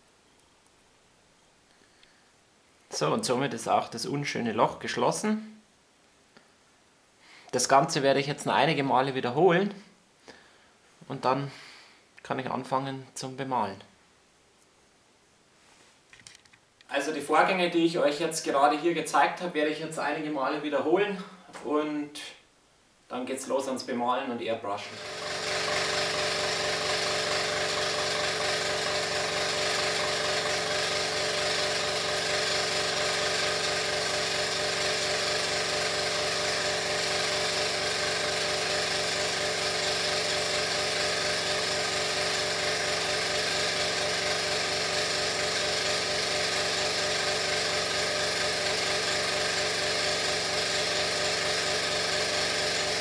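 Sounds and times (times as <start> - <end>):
air compressor humming and pulsing: 24.9 - 53.0.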